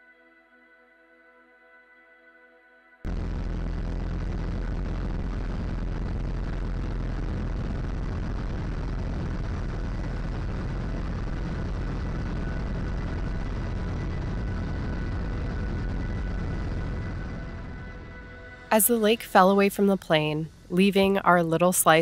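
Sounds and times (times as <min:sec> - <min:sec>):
float plane engine and propeller: 0:03.1 - 0:18.7.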